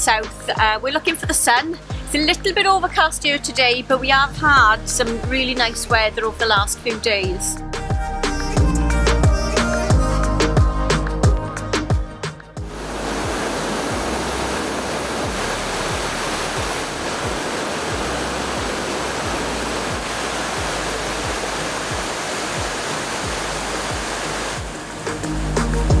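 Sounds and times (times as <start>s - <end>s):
music with low beat: 7.6s - 14.2s, 15.2s - 26.0s
river water rushing over weir: 12.7s - 26.0s.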